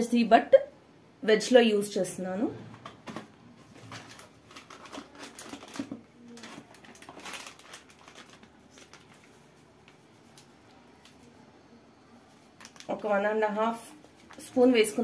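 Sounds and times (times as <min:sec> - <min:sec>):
plastic sachet crinkling: 0:03.7 - 0:11.3, 0:12.3 - 0:15.0.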